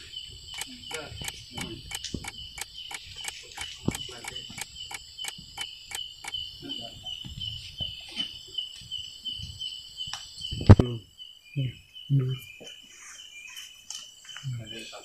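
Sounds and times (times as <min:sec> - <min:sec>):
high insect trill: 0:00.0 - 0:15.0
sharp clicks: 0:00.5 - 0:06.4.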